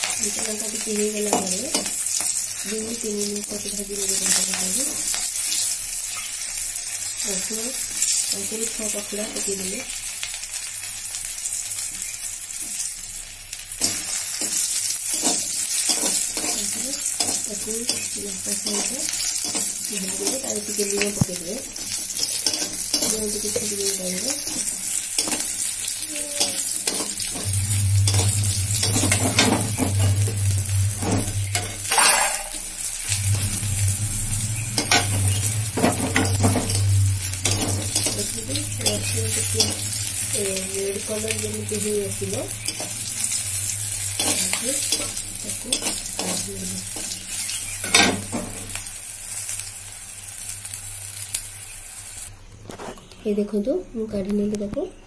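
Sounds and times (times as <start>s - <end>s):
oil sizzling: 0.0s - 52.6s
spatula stirring: 13.8s - 30.4s, 42.4s - 48.6s.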